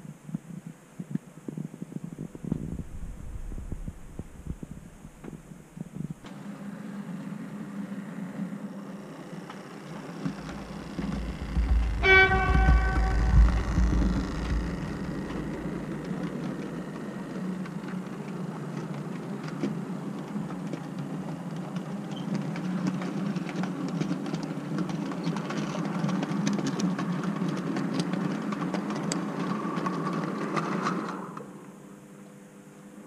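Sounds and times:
model train motors whirring: 0:05.3 - 0:32.0.

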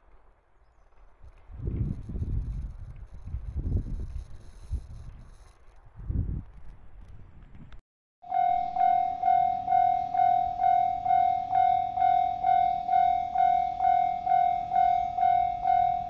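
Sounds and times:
level crossing alarm bell: 0:08.2 - 0:16.0.

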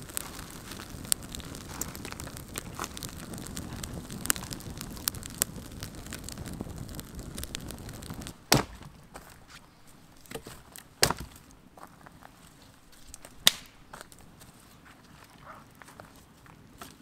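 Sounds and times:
campfire crackling: 0:00.0 - 0:17.0
sticks snapping: 0:13.1 - 0:14.1.

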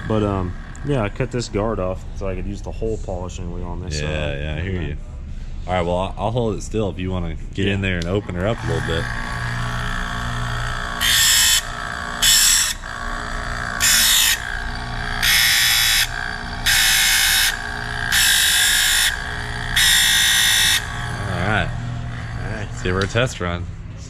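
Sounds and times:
tool grinder running: 0:00.0 - 0:01.8, 0:08.0 - 0:23.3
metal grinding hiss: 0:08.4 - 0:23.0.

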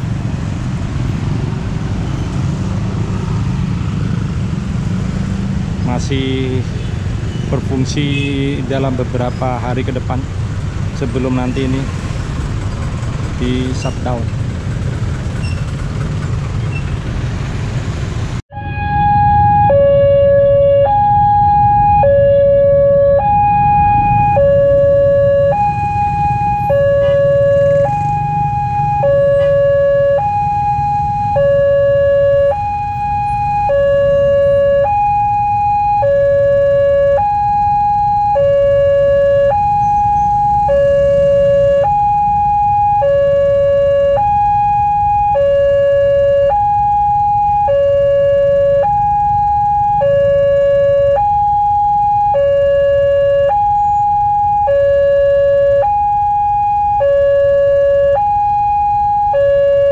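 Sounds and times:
level-crossing alarm two tones: 0:18.5 - 0:59.9.

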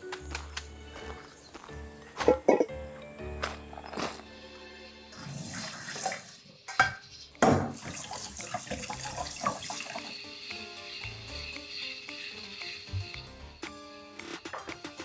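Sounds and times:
tap water running into colander: 0:05.1 - 0:13.7.

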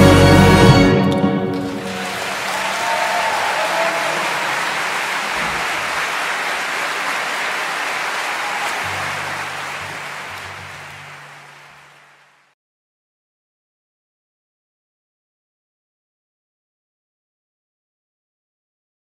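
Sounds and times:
audience applauding: 0:01.5 - 0:12.6.

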